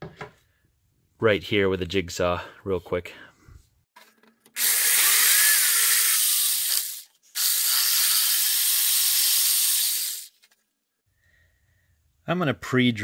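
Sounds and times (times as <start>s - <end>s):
jigsaw cutting wood: 4.6s - 10.3s.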